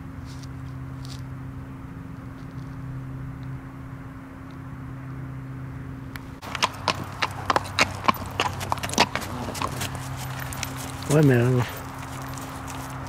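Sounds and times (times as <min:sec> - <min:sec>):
steady low hum: 0:00.0 - 0:13.0
steps or hooves on hard ground: 0:06.4 - 0:13.0.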